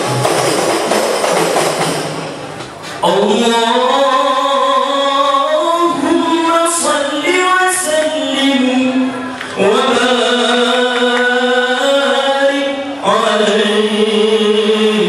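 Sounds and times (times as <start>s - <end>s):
men chanting: 3.0s - 15.0s.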